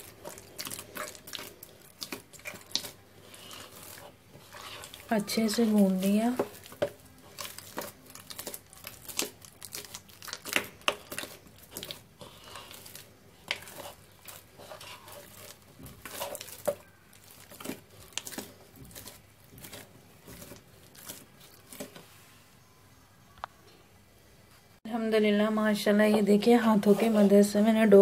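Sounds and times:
hands kneading wet dough: 0.0s - 22.2s, 25.9s - 28.0s.

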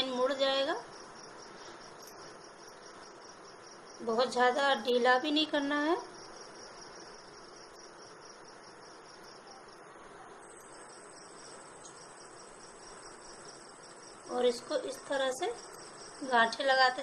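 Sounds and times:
faint high-pitched drone: 4.0s - 17.0s.

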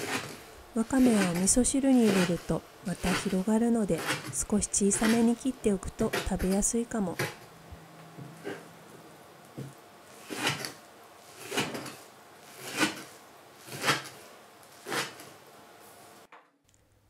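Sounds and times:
knife chopping on wooden board: 0.0s - 0.4s, 1.0s - 5.4s, 6.0s - 7.4s, 9.6s - 10.8s, 11.4s - 12.0s, 12.6s - 14.2s, 14.8s - 15.3s.

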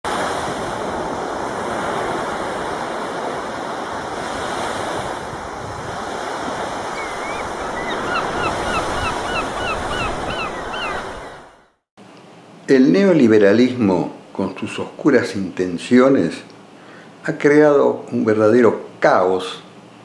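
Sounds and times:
sea waves washing in: 0.0s - 11.8s
bird calling: 6.8s - 11.6s.

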